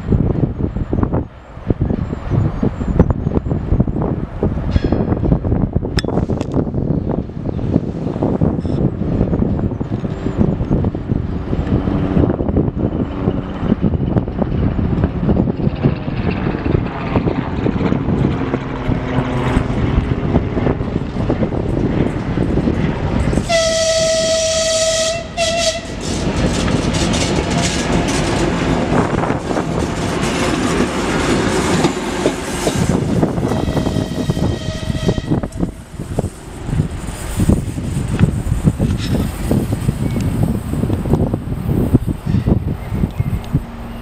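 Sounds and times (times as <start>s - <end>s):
diesel locomotive engines throbbing: 0.0s - 44.0s
locomotive horn blast: 23.4s - 26.2s, 33.4s - 35.8s.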